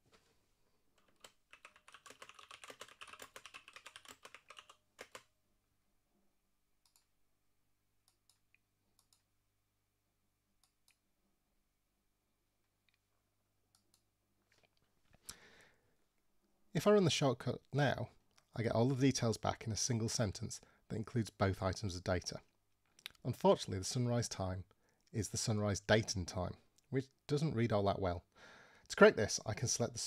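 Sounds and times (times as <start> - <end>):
computer keyboard typing: 1.0 - 5.3.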